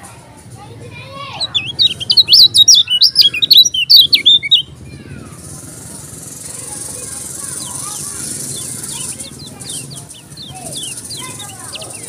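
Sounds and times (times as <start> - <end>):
small bird twittering song: 1.2 - 4.7, 6.3 - 12.0.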